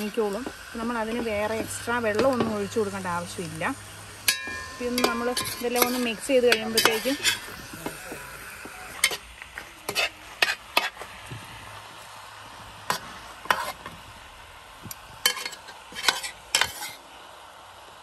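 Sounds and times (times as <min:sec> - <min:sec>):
food sizzling: 0:00.0 - 0:18.0
ladle scraping a metal pot: 0:04.3 - 0:07.6, 0:09.8 - 0:11.0, 0:12.9 - 0:13.9, 0:15.2 - 0:17.0.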